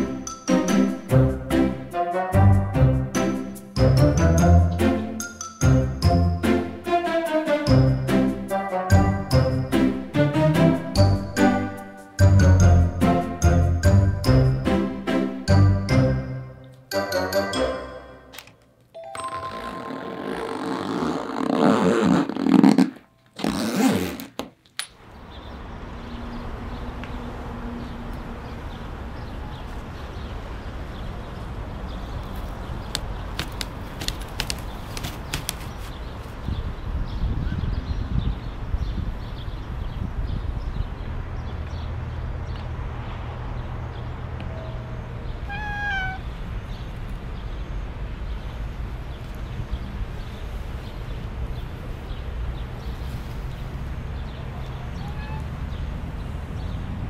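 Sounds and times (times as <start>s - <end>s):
low outdoor background noise: 18.0s - 57.0s
zipper being pulled shut: 19.5s - 24.6s
cat meowing: 45.4s - 46.4s, 54.8s - 55.6s.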